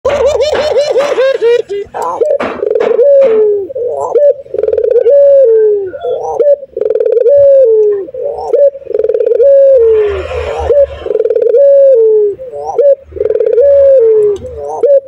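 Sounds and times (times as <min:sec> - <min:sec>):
dove cooing: 0:00.1 - 0:15.0.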